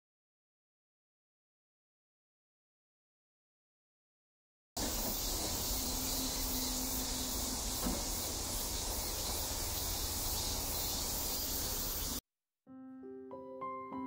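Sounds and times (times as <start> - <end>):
insect chorus: 4.8 - 12.2.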